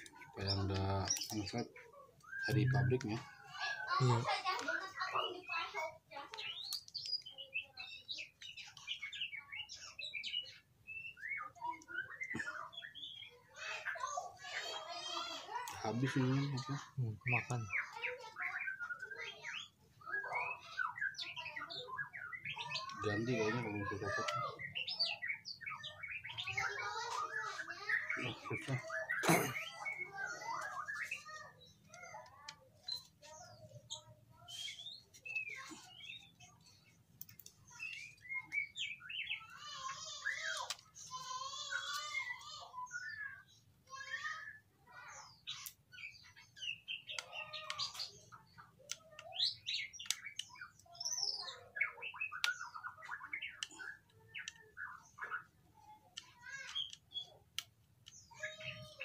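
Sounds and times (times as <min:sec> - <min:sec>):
birds chirping: 0:00.0 - 0:59.0.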